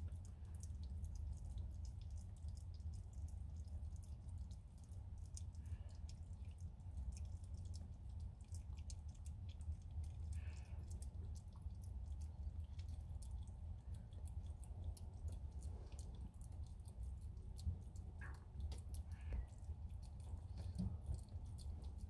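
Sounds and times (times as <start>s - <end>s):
kittens suckling wet clicks: 0.0s - 22.0s.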